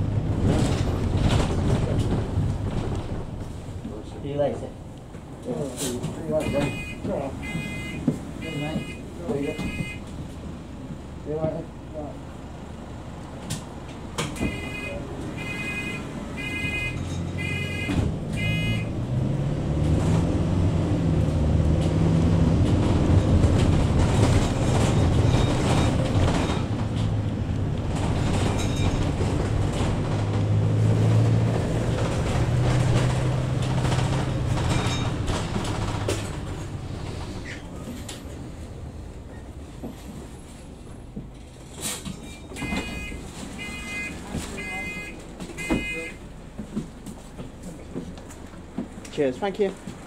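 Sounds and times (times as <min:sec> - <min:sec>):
short electronic beeps: 0:42.6 - 0:46.2.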